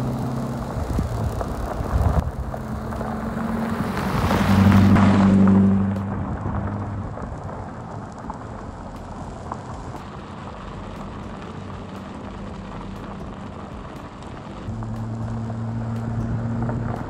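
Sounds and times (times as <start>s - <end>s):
faint car engine: 0.0s - 17.0s
tyres crunching over gravel: 0.0s - 17.0s.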